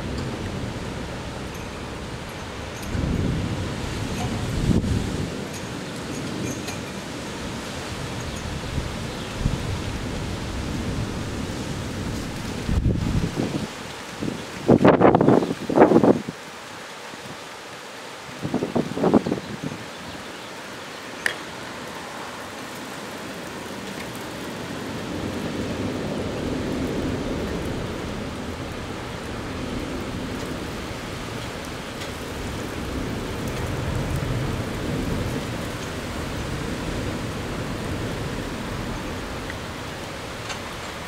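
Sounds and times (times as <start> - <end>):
low rolling thunder: 0.0 - 6.4, 7.2 - 16.2, 24.7 - 40.8
rain hiss: 0.0 - 41.0.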